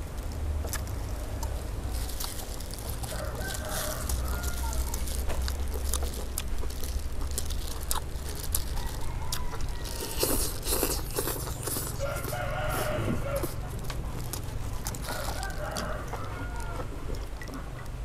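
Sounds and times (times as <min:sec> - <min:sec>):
chewing and tearing food: 0:00.0 - 0:18.0
rooster crowing: 0:03.0 - 0:05.1, 0:08.6 - 0:10.4, 0:11.9 - 0:13.7, 0:15.0 - 0:17.0
chickens clucking: 0:07.9 - 0:18.0.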